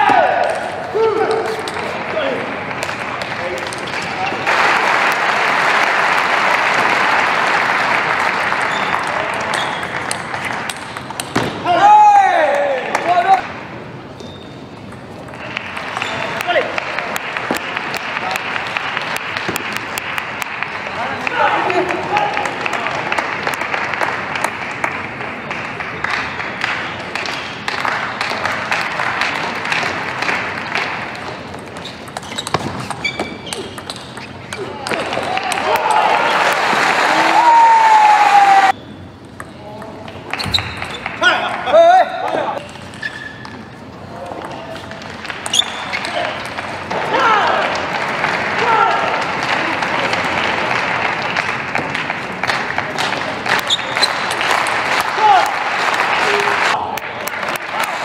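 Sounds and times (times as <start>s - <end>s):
crowd applauding: 2.1s - 11.1s, 15.4s - 31.4s, 34.9s - 38.8s, 46.1s - 58.0s.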